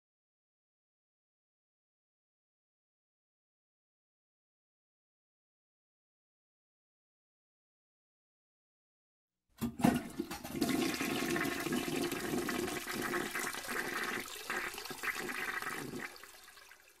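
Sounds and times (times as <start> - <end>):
toilet knock: 9.6 - 16.0
toilet water rushing: 9.6 - 17.0.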